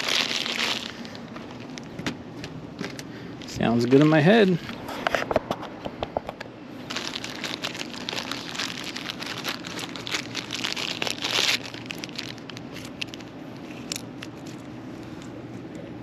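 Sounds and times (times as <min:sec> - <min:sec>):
steady low hum: 0:00.0 - 0:16.0
handling crinkling and clicks: 0:06.3 - 0:15.3.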